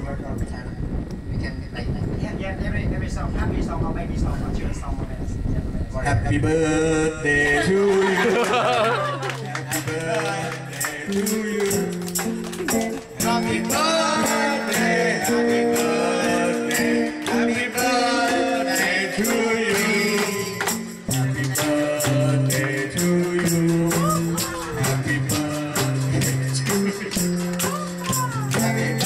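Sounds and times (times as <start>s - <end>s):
karaoke backing music: 0.2s - 29.0s
man singing into a microphone: 6.3s - 12.0s, 13.2s - 29.0s.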